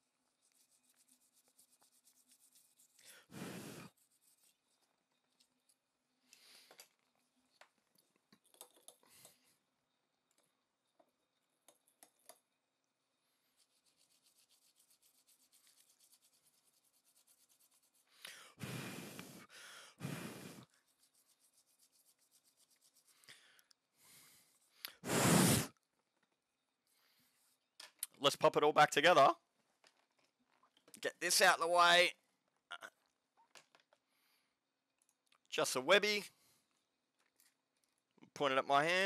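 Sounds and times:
soft rubbing strokes: 0.0 - 5.0, 13.3 - 18.2, 18.8 - 23.3
breath-like gusts: 3.1 - 3.9, 18.3 - 20.7, 25.0 - 25.7
small clicks: 5.3 - 9.4.

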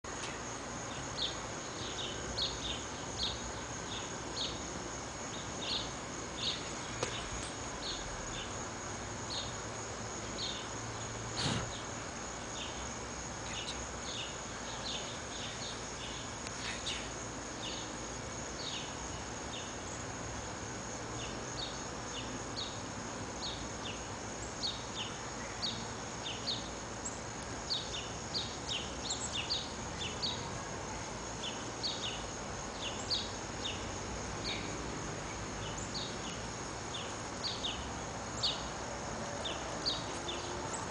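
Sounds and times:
small bird chirping: 13.4 - 17.9.

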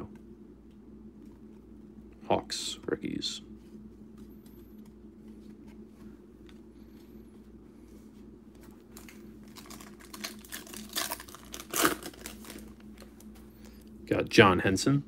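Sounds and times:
faint low hum: 0.0 - 15.0
foil wrapper crinkling and tearing: 9.0 - 12.8.

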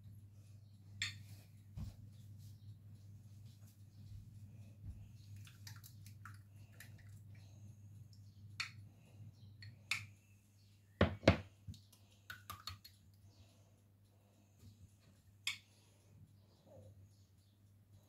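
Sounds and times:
low steady hum: 0.0 - 18.0
bowl knocking on tiled counter: 11.0 - 11.4.

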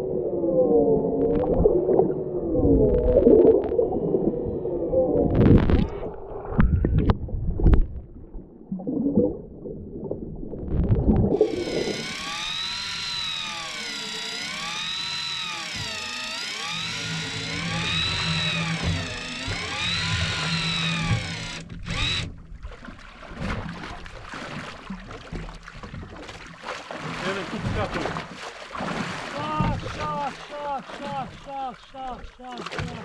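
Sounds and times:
whine rising and falling: 0.0 - 6.6, 10.8 - 22.4
water gurgling: 0.0 - 33.0
wavering underwater hum: 0.0 - 33.0.

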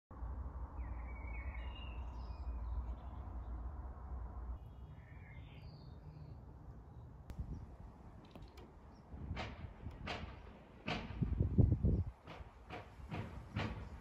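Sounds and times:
small birds chirping: 4.6 - 9.3.

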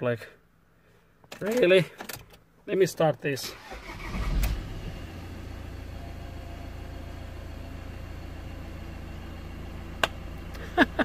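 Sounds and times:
diesel engine idling: 4.9 - 11.0.

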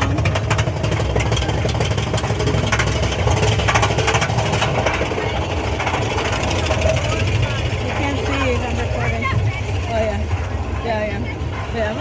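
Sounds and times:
roller coaster rumbling and clattering: 0.0 - 12.0.

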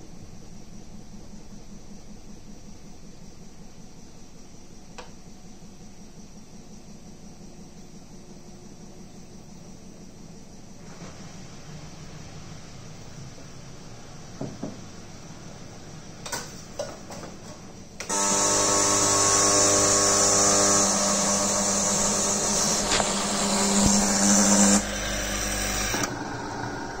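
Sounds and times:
espresso machine pump hissing: 18.1 - 27.0.

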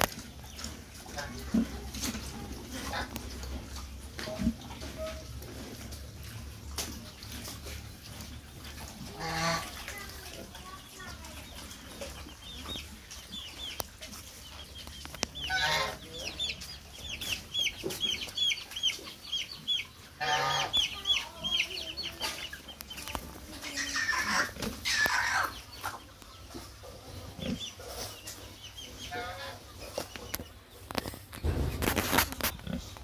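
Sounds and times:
chickens peeping: 7.0 - 33.0
chicken calls: 12.0 - 31.1.

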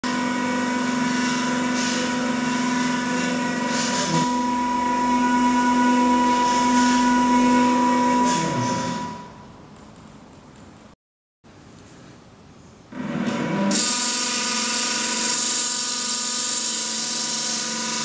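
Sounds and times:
electric motors whining: 0.0 - 9.3.

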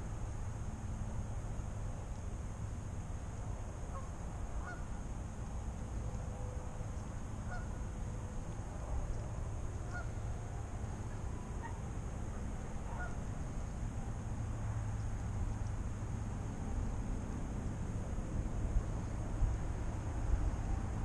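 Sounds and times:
steady low rumble: 0.0 - 21.0
geese honking in the distance: 3.9 - 4.9, 7.4 - 7.8, 9.8 - 10.3, 11.1 - 11.8, 12.8 - 13.3.

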